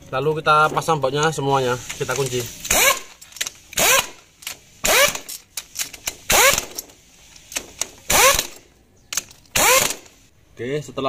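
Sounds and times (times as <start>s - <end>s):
impact wrench tightening bolts: 2.1s - 10.2s.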